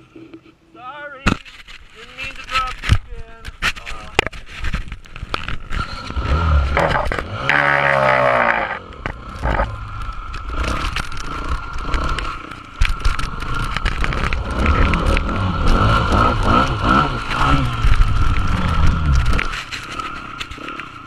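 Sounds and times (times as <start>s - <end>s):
wind noise on camera: 1.4s - 7.4s, 9.0s - 21.0s
dirt bike engine: 1.4s - 21.0s.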